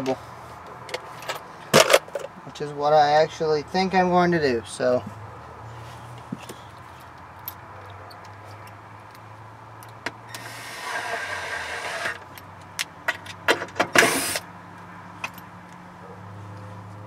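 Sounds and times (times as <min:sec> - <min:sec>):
cordless drill driving screw: 0:10.3 - 0:12.2, 0:14.0 - 0:14.4.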